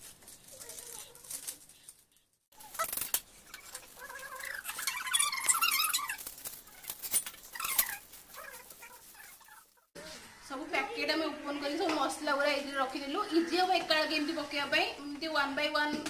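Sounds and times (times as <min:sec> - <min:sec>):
plastic sachets crinkling: 0:00.0 - 0:09.9.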